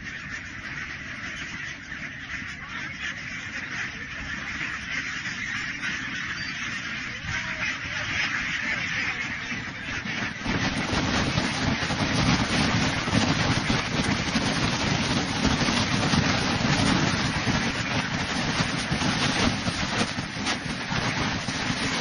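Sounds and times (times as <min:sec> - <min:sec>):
wind buffeting microphone: 0:06.6 - 0:22.0.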